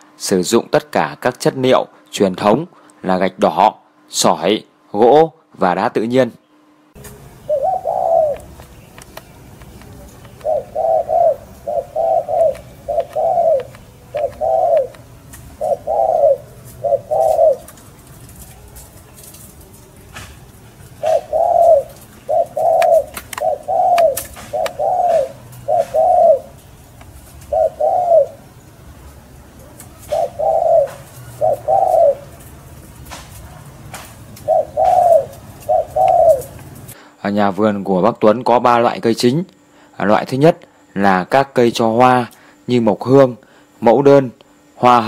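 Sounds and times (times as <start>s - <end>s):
dove cooing: 7.0s - 37.0s.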